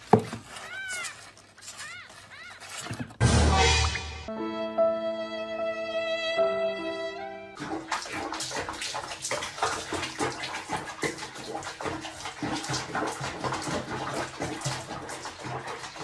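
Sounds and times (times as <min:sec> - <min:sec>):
water splashing in a basin: 0:07.6 - 0:16.0.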